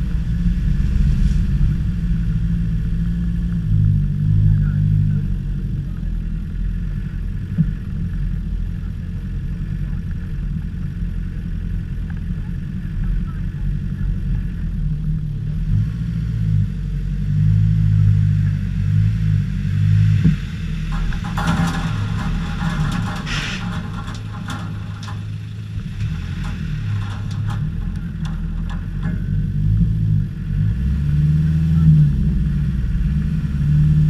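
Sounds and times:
car engine rumbling at low revs: 0:00.0 - 0:34.0
crackly scratchy noise: 0:18.4 - 0:32.1.

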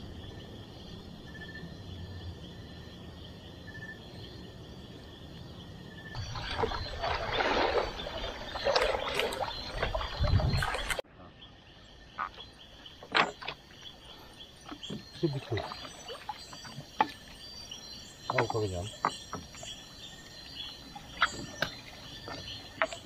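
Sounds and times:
water sloshing around canoe hull: 0:06.0 - 0:11.1, 0:12.1 - 0:23.0.

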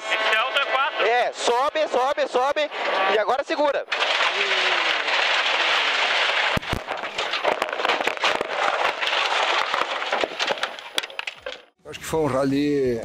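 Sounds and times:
gravel pelting car body: 0:03.9 - 0:11.6.

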